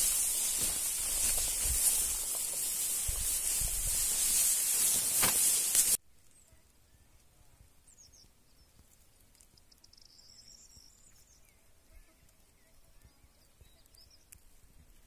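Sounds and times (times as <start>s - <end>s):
faint high-pitched chirps: 7.8s - 14.5s.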